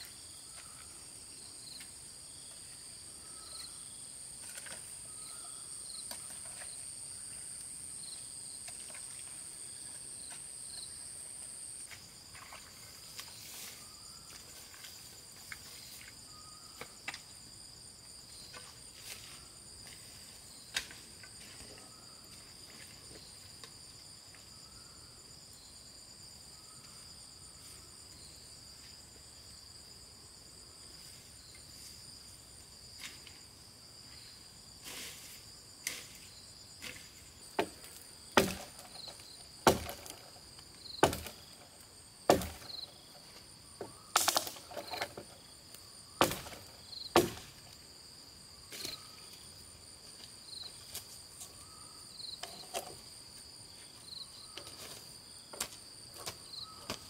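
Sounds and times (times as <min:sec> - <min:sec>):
insects droning: 0:00.0 - 0:57.0
chopping strikes on wood: 0:37.6 - 0:39.0, 0:39.6 - 0:40.3, 0:41.0 - 0:41.4, 0:42.3 - 0:42.7, 0:46.2 - 0:47.6.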